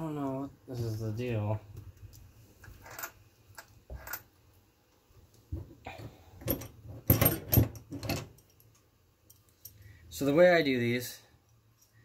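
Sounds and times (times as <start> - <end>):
metal tools clicking on wooden bench: 2.0 - 4.3.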